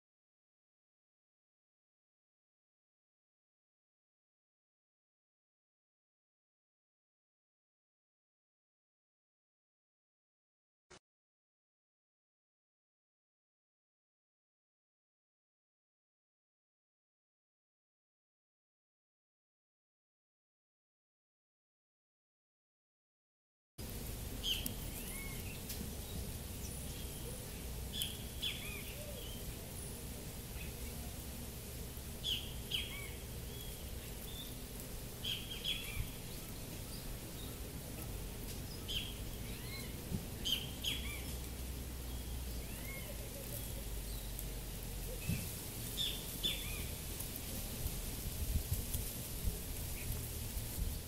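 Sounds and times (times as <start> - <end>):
small birds chirping: 23.8 - 47.9, 48.8 - 50.8.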